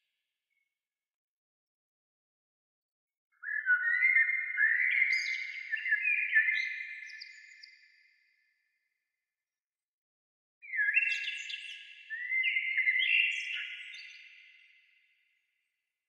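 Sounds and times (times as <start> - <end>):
bird whistling song: 3.4 - 7.9, 10.6 - 14.6.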